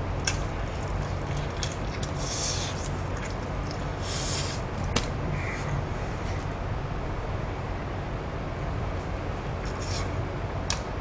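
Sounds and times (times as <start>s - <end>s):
steady low hum: 0.0s - 11.0s
person chewing: 0.2s - 3.8s.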